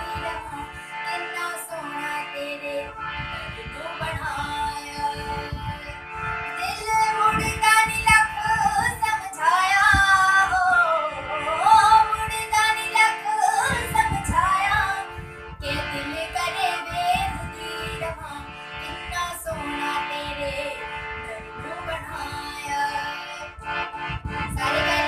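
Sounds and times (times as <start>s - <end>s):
girl singing: 0.0s - 3.0s, 3.6s - 23.6s
harmonium steady notes: 0.0s - 25.0s.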